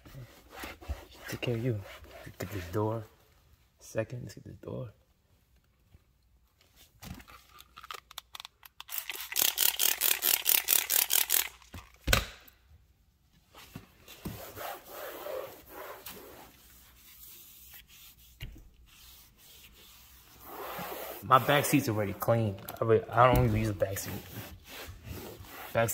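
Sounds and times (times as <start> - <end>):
towel wiping car trim: 14.1 - 22.4, 23.0 - 25.9.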